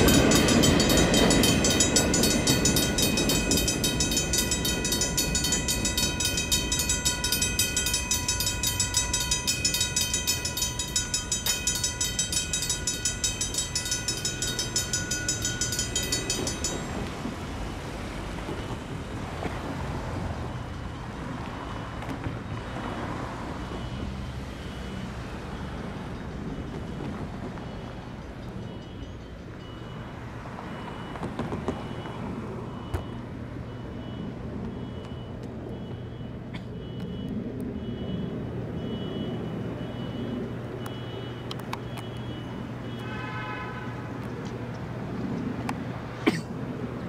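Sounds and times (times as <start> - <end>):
freight train rumble: 0.0 - 23.8, 24.9 - 41.8
railroad crossing bells ringing: 0.0 - 44.5
street noise: 0.0 - 47.0.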